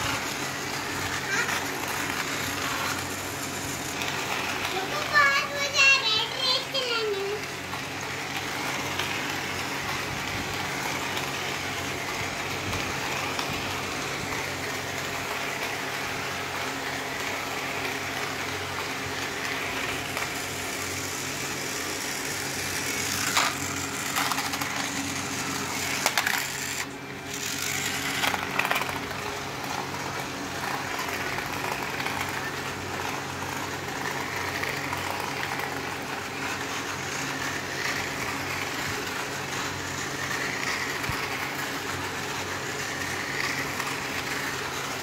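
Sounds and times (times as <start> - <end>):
toy train motor whirring: 0.0 - 45.0
toy wheels rattling on track: 0.0 - 45.0.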